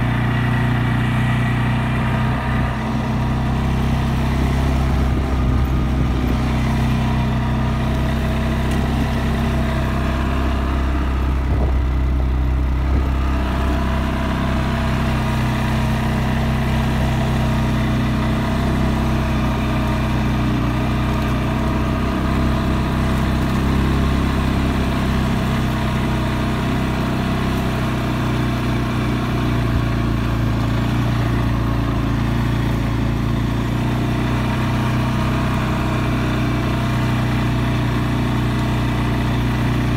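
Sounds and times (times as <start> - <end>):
atv engine running: 0.0 - 39.9.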